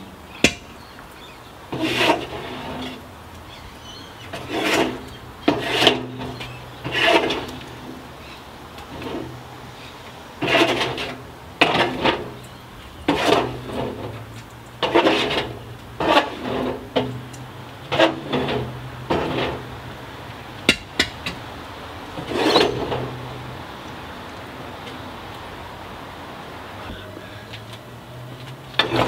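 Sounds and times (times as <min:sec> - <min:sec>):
steel rod scraping inside furnace: 0:01.7 - 0:03.1, 0:03.8 - 0:19.9, 0:22.2 - 0:23.5, 0:28.8 - 0:29.0.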